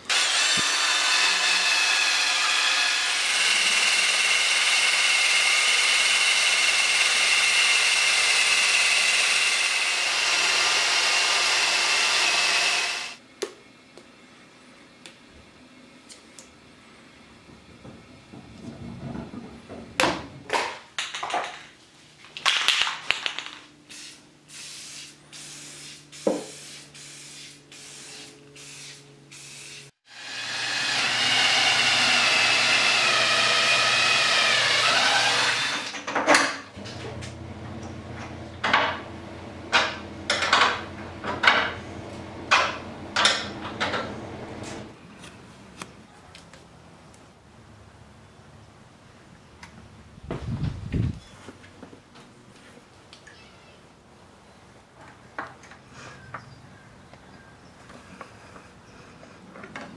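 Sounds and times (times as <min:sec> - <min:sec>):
cordless drill driving a screw: 0:00.1 - 0:13.2, 0:30.1 - 0:36.0
knocks and clicks of tools: 0:39.7 - 0:41.8.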